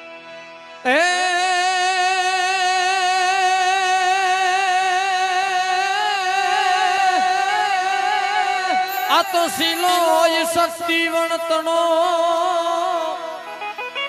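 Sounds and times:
harmonium note: 0:00.0 - 0:14.0
man singing held note: 0:06.0 - 0:13.6.

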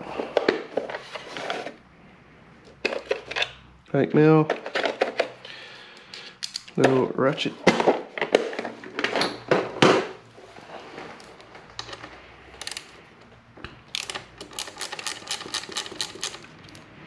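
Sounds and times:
socket ratchet clicking: 0:13.9 - 0:16.8.

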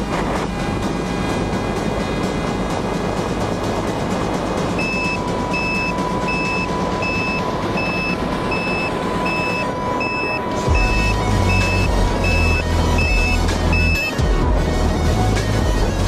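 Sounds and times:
steady high tone: 0:04.6 - 0:14.4
electronic beeps: 0:04.8 - 0:14.2.

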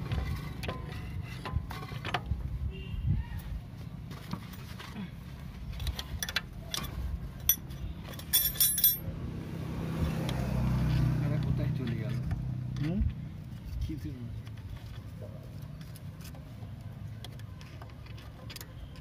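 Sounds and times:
metal hand tools clinking: 0:06.2 - 0:09.1.

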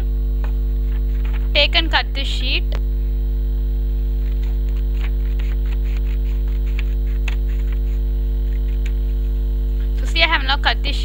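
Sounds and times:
electrical mains hum: 0:00.0 - 0:11.0
scissors cutting paper: 0:04.2 - 0:10.0.

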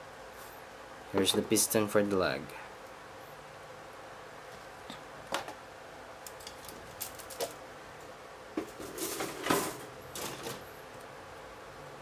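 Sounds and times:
plastic parts clicking and clattering: 0:06.4 - 0:07.6.

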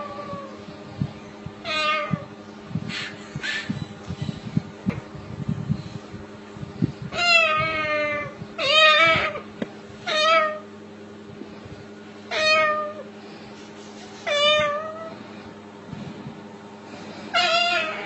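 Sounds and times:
steady low hum: 0:00.0 - 0:18.0
cat-like meows: 0:01.6 - 0:02.3, 0:07.1 - 0:10.7, 0:12.3 - 0:13.1, 0:14.2 - 0:15.1, 0:17.3 - 0:18.0.

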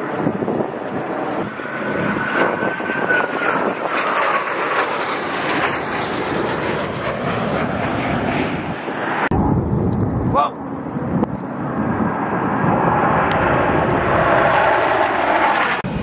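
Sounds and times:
jets flying past overhead: 0:00.0 - 0:16.0.

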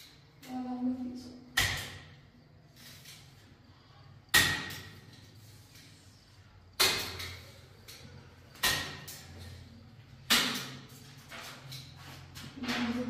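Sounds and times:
hand slapping photos on wall: 0:01.5 - 0:02.2, 0:04.3 - 0:06.0, 0:06.8 - 0:13.0.

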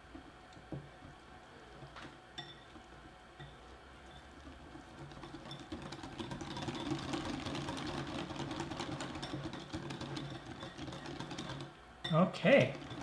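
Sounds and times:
whisk clattering against glass bowl: 0:03.4 - 0:13.0.

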